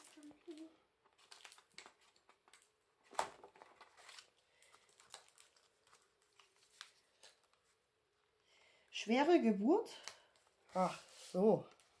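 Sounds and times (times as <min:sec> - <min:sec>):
paper rustling and clicking: 0:00.0 - 0:07.8.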